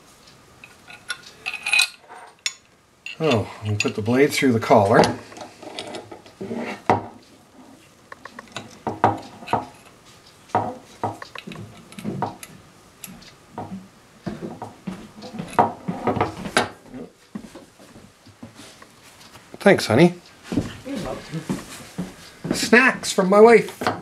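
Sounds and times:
metal parts clinking: 0.6 - 4.0
quiet rubbing: 3.1 - 23.9.

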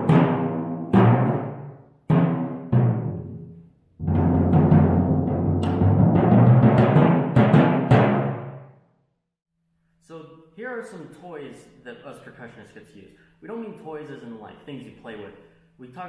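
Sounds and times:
timpani roll: 0.0 - 8.6
timpani struck with mallets: 0.0 - 8.6.

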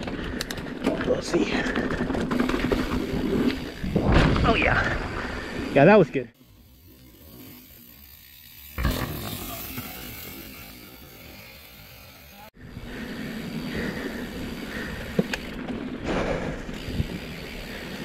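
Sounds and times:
bike tyres rolling on dirt: 0.0 - 18.0
bike landing with a thud: 3.9 - 4.9.

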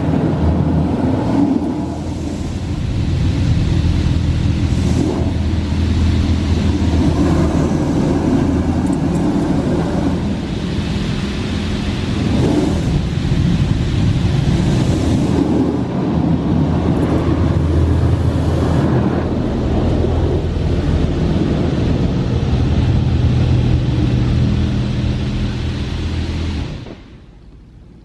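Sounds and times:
automatic car wash rumbling: 0.0 - 28.0
water spray rushing hiss: 1.6 - 22.0.

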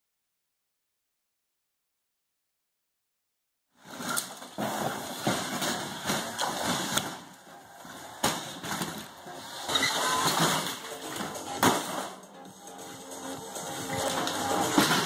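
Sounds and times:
scraping and rattling metal: 3.9 - 15.0
sharp bangs: 9.7 - 12.3, 13.4 - 15.0.

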